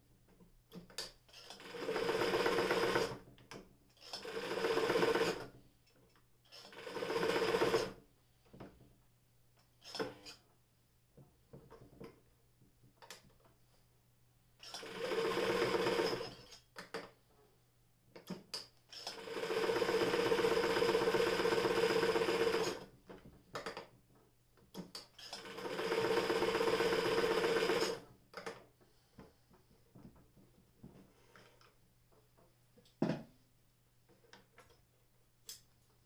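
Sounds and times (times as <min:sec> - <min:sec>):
electric sewing machine running: 0:01.7 - 0:03.2, 0:04.3 - 0:05.4, 0:06.8 - 0:08.0, 0:14.8 - 0:16.3, 0:19.1 - 0:22.8, 0:25.3 - 0:28.0.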